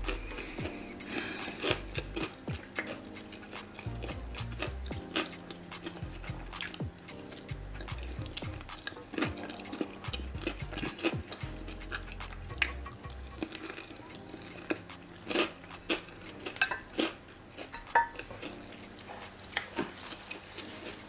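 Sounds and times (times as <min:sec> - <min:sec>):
utensils clinking on a plate: 0:13.3 - 0:18.9.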